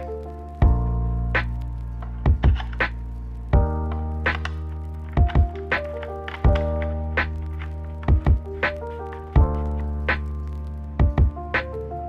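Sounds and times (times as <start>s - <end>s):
held bass and chord notes: 0.0s - 12.0s
kick drum hits: 2.3s - 2.6s, 5.2s - 5.5s, 8.1s - 8.5s, 11.0s - 11.4s.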